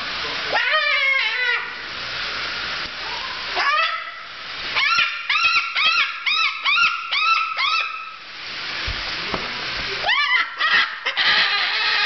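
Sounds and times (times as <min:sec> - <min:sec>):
cockatoo squawking: 0:00.5 - 0:01.8, 0:03.6 - 0:08.2, 0:10.0 - 0:12.0.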